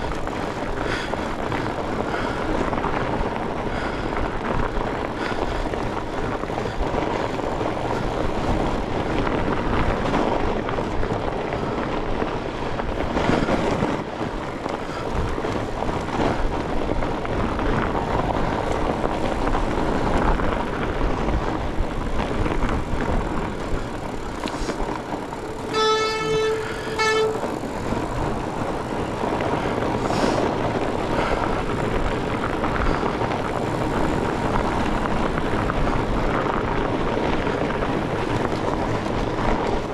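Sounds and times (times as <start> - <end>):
bike tyres rumbling on frozen trail: 0.0 - 39.9
wind on microphone: 0.0 - 39.9
bike squealing: 23.2 - 31.8.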